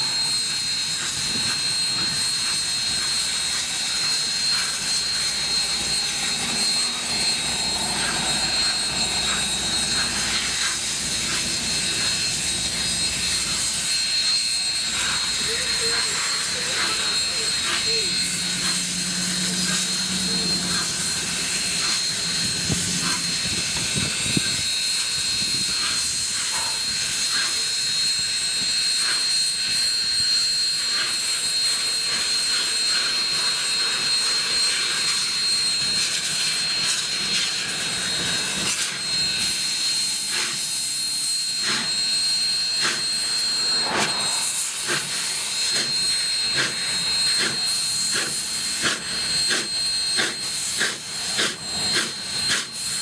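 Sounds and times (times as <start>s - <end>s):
steady high tone: 0.0s - 53.0s
steam locomotive hissing: 0.0s - 53.0s.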